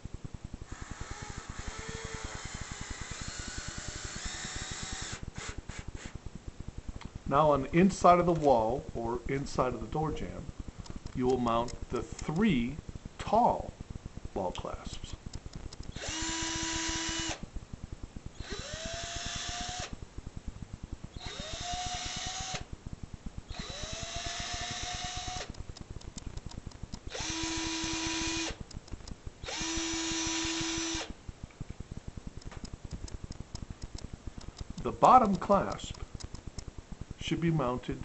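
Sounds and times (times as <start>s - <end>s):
cordless drill driving screws: 0.7s - 6.1s, 15.9s - 17.4s, 18.4s - 19.9s, 21.2s - 22.7s, 23.5s - 25.6s, 27.1s - 28.6s, 29.4s - 31.1s
small clicks and handling noises: 15.3s - 16.0s, 25.4s - 27.1s, 28.6s - 29.2s, 32.4s - 36.8s.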